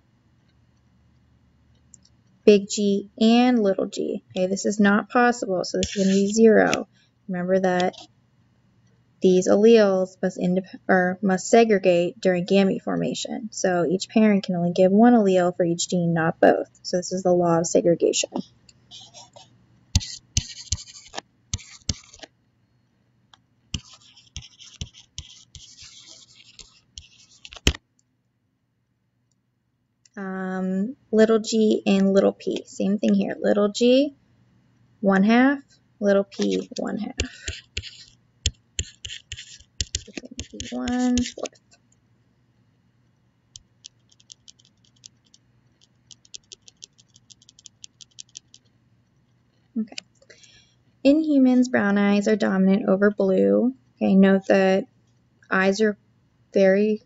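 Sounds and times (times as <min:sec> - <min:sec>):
low steady hum: 0:00.0 - 0:57.0
stylus tapping and scratching on tablet: 0:05.8 - 0:06.9, 0:18.7 - 0:22.3, 0:23.7 - 0:27.8, 0:36.2 - 0:41.8, 0:43.6 - 0:50.1
mouse scroll wheel clicking: 0:20.0 - 0:22.3, 0:23.8 - 0:27.8, 0:36.3 - 0:41.6, 0:43.6 - 0:48.7.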